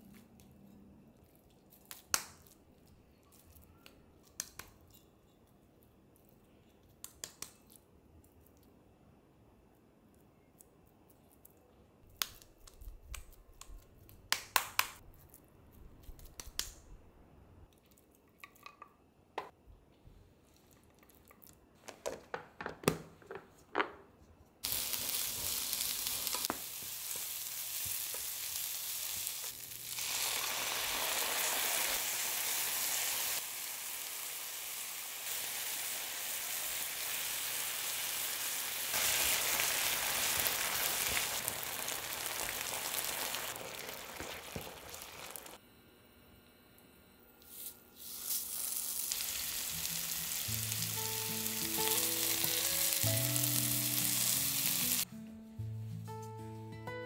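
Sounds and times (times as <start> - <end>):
onions sizzling in a frying pan: 24.6 - 45.6, 48.0 - 55.1.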